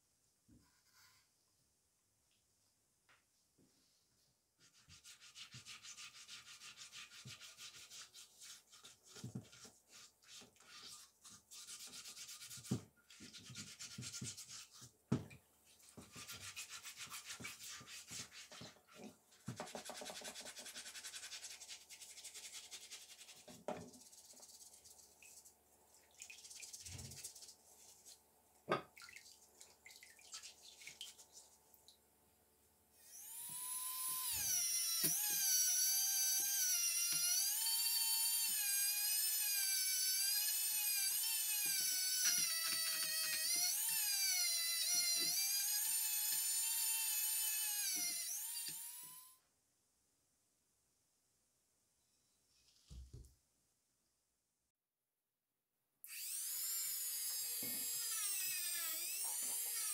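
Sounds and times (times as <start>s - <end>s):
rotary tool whining: 56.1s - 59.9s.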